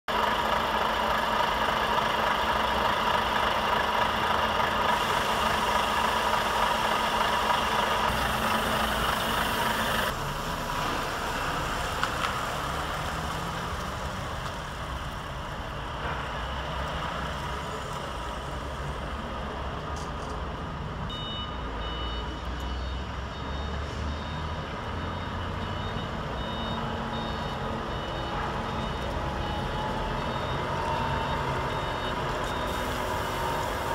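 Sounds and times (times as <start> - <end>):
truck diesel engine running: 0.1 - 19.6, 24.2 - 33.9
reversing alarm beeping: 4.7 - 10.1, 21.1 - 33.9.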